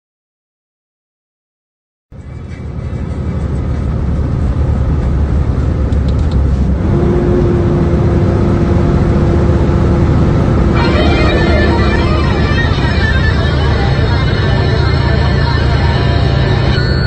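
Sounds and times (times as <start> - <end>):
truck engine and road rumble: 2.1 - 17.0
steady hum: 2.2 - 17.0.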